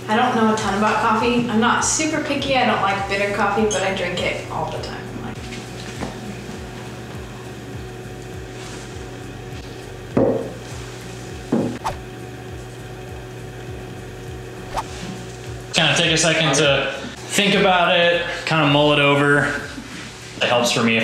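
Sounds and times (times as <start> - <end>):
mugs clunking on wooden table: 10.2 - 10.6.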